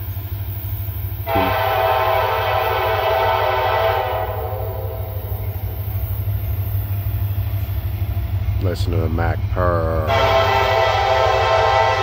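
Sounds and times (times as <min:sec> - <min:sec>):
train low rumble: 0:00.0 - 0:12.0
locomotive horn: 0:01.2 - 0:05.7, 0:10.0 - 0:12.0.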